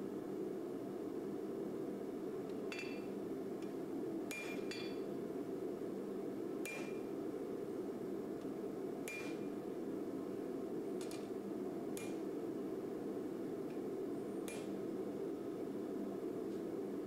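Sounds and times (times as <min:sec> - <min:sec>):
hammer striking blade on anvil: 0:04.3 - 0:05.0, 0:06.6 - 0:07.0, 0:09.1 - 0:09.4.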